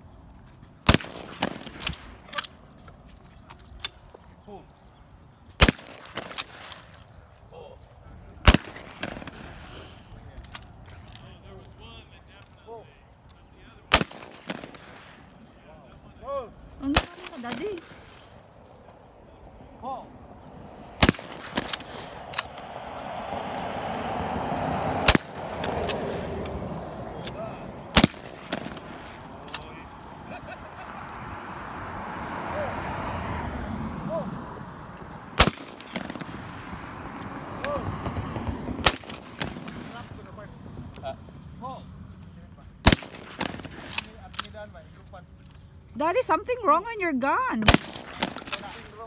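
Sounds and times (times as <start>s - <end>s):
shotgun shots: 0.8s - 2.5s, 5.6s - 6.9s, 8.4s - 10.0s, 13.9s - 15.5s, 16.8s - 18.3s, 20.9s - 22.8s, 25.0s - 26.4s, 27.2s - 29.8s, 35.4s - 36.9s, 38.8s - 40.3s, 42.8s - 44.3s, 47.6s - 49.0s.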